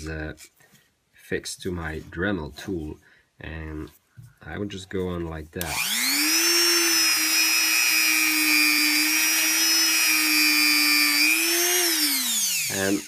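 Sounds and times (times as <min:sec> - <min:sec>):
rotary tool high whine: 0:05.7 - 0:13.0.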